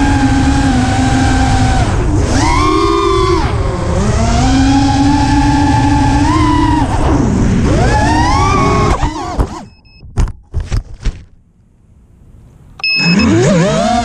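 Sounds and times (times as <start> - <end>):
drone motors whining: 0.0 - 9.8, 12.8 - 14.0
short high beeps: 12.8 - 13.5.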